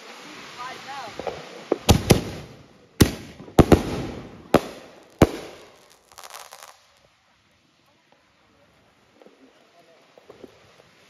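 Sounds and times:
fireworks crackle: 0.0s - 11.0s
fireworks bangs: 0.1s - 7.2s.

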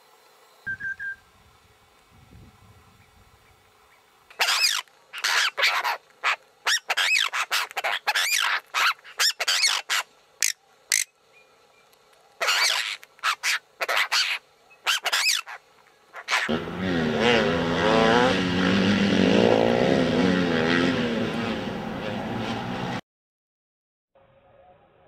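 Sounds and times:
birds giving harsh rasping calls: 3.4s - 16.5s.

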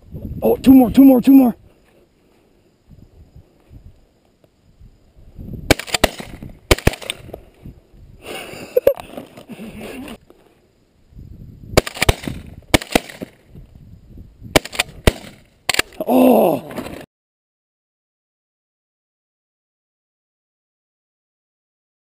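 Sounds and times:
shotgun shots: 5.7s - 7.2s, 11.8s - 13.4s, 14.5s - 15.9s.

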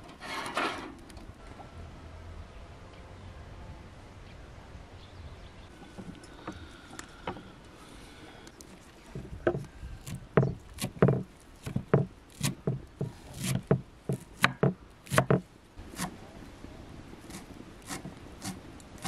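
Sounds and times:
knife chopping on wooden board: 9.5s - 16.2s.

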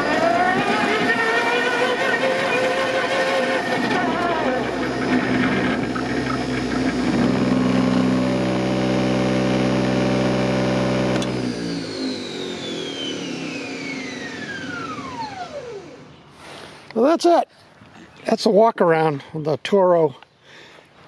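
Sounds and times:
electric motor humming: 0.0s - 16.1s
motor whine spinning down: 0.0s - 16.3s
click: 11.1s - 11.4s.

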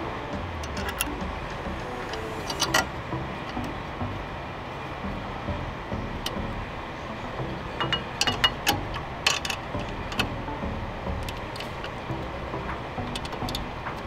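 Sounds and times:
ratchet wrench clicking: 0.6s - 1.1s, 2.1s - 2.9s, 7.8s - 10.3s, 13.0s - 13.7s.

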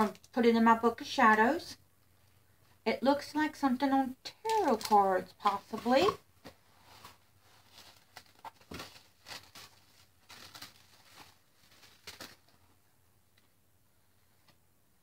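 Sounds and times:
paper rustling and tapping: 7.7s - 12.6s.

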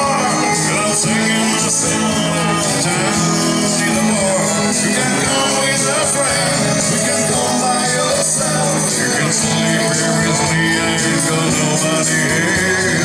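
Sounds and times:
country song: 0.0s - 13.0s.

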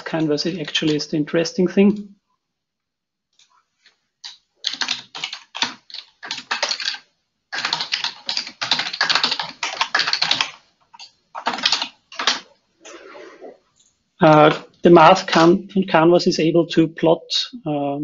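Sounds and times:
typing on computer keyboard: 0.0s - 1.1s, 4.2s - 12.5s, 15.2s - 15.6s.

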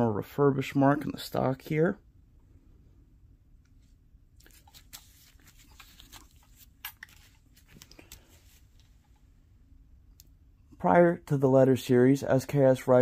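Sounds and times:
light handling clicks and crackles: 4.4s - 9.3s.

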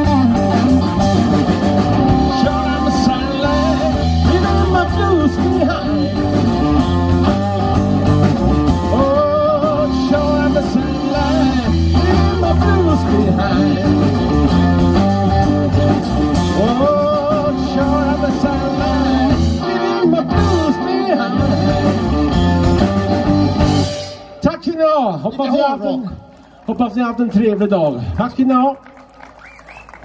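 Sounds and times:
drum kit: 0.0s - 24.3s
electric bass: 0.0s - 24.6s
electric guitar: 0.0s - 24.7s
person singing lead vocal: 1.9s - 8.0s, 8.6s - 22.6s.

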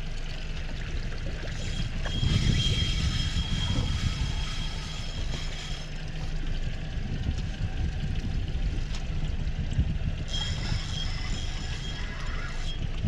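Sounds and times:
rumble of wind and water: 0.0s - 13.0s
thin high whine: 1.5s - 6.0s, 10.3s - 12.9s.

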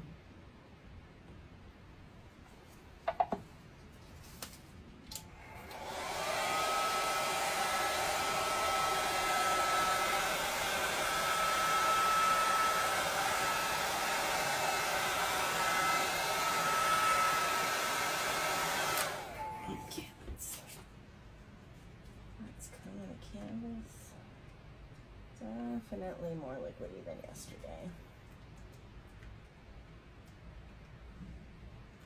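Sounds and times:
heat gun blowing with whine: 5.2s - 19.9s.

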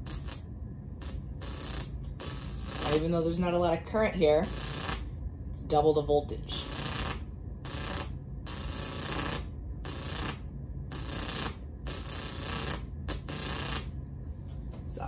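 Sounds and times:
high-voltage sparks crackling: 0.0s - 3.2s, 4.4s - 5.0s, 6.5s - 13.9s
steady low hum: 0.0s - 15.0s.

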